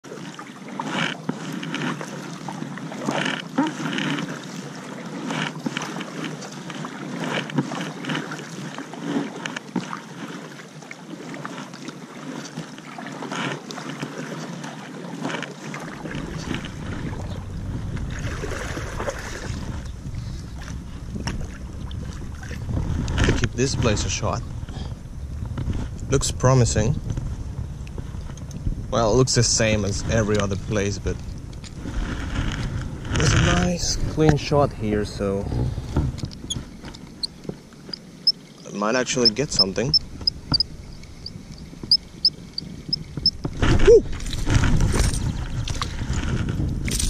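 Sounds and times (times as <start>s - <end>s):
kayak paddle splashing water: 0.0s - 26.0s, 26.7s - 47.0s
low rumble: 16.1s - 37.2s.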